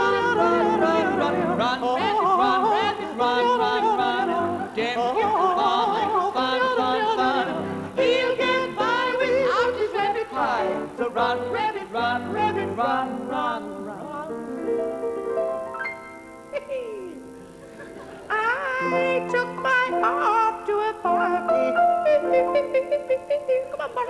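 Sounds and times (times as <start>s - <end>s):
operatic singing voice: 0.0s - 14.5s, 18.3s - 24.0s
grand piano accompaniment: 0.0s - 24.0s.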